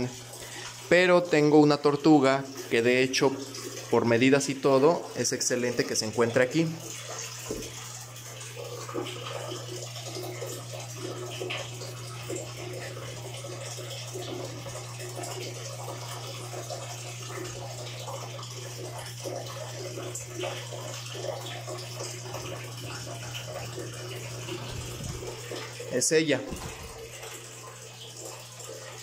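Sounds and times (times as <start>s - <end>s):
water sloshing in a tub: 0.0s - 29.0s
steady low hum: 24.5s - 25.8s.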